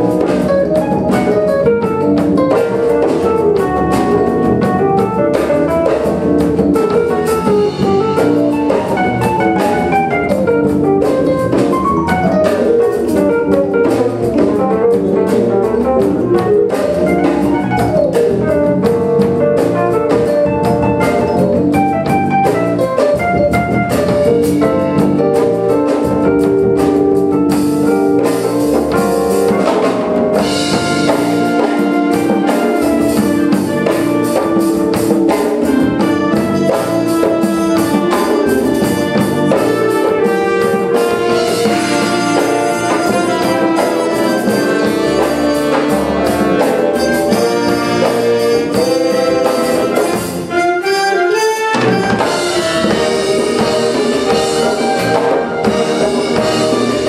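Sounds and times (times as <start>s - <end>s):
drums keeping steady beat: 0.0s - 50.9s, 51.7s - 57.0s
live concert band playing: 0.0s - 57.0s.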